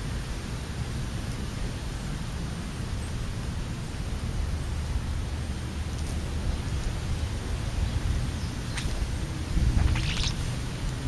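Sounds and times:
wind buffeting microphone: 8.0 - 10.6.

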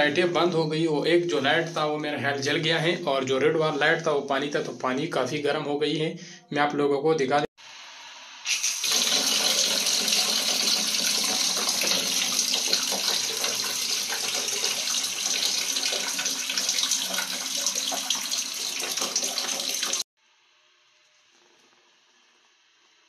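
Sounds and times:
water pouring into plastic bucket: 8.5 - 20.0.

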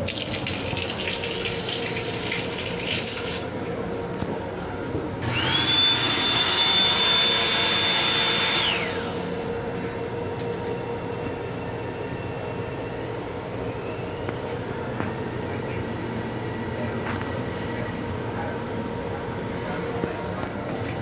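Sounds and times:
train car hum: 0.0 - 5.4, 8.6 - 21.0
appliance motor whining: 5.2 - 9.5.

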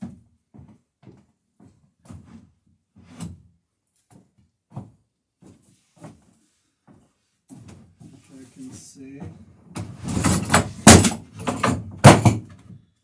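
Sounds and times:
knocks on wooden planking: 10.5 - 12.6.

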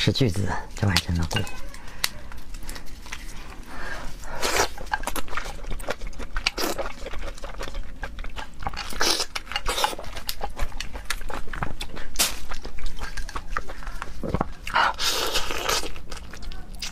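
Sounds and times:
shell cracking and crunching: 4.3 - 14.6.

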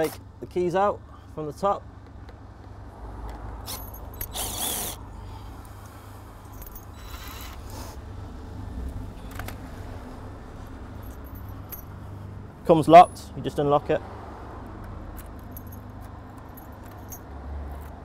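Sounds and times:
low steady rumble: 0.2 - 14.0
small parts clicking and rustling: 2.0 - 5.0, 6.4 - 7.8, 9.2 - 9.6, 11.0 - 12.0, 14.6 - 18.0
cordless drill spinning: 4.2 - 5.0.

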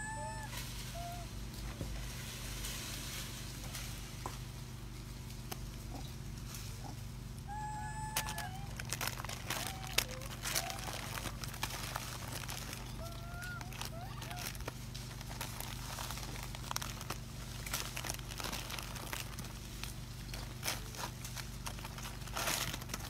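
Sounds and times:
faint monkey calls: 0.0 - 1.5, 5.8 - 6.2, 6.8 - 14.8
plastic crinkling: 7.9 - 23.0.

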